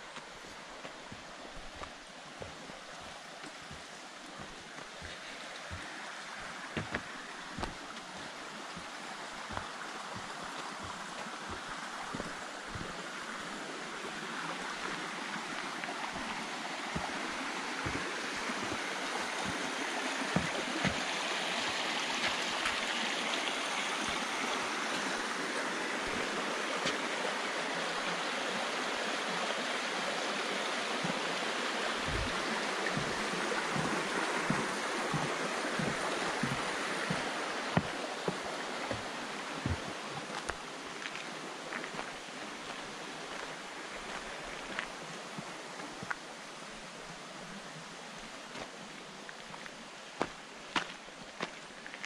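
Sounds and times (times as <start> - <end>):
soft footsteps: 0.0 - 13.6, 14.6 - 23.4, 31.0 - 46.2
rocky stream rushing: 0.0 - 52.0.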